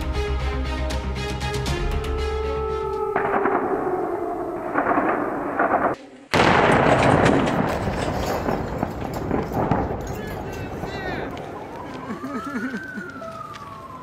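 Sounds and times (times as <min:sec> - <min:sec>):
gunfire crackling: 0:03.2 - 0:12.2.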